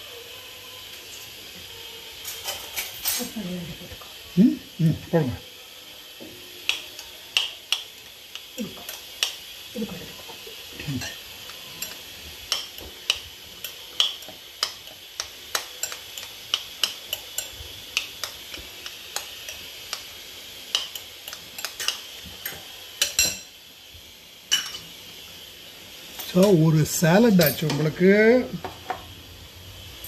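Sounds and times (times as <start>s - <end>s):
faint steady hiss: 0.0s - 30.0s
spoon clicking against a bowl: 6.7s - 9.4s, 11.8s - 20.1s, 20.7s - 23.4s.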